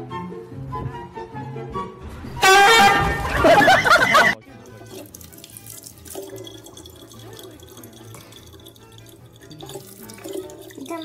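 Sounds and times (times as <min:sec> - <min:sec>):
tap water running into bottle: 0:03.6 - 0:11.0.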